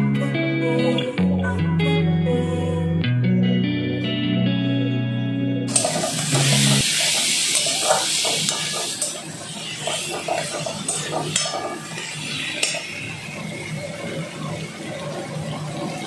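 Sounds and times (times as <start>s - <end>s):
potatoes sizzling in pan: 5.7s - 13.2s.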